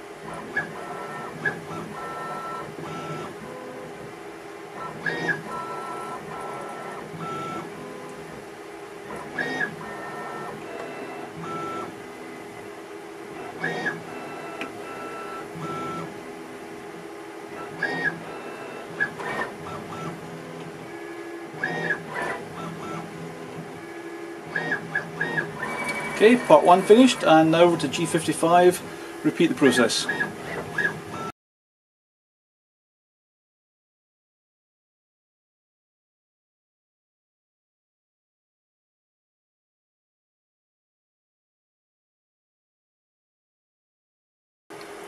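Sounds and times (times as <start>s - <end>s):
steady machine hum: 0.0s - 31.3s
machine axis drives whining: 17.5s - 31.3s.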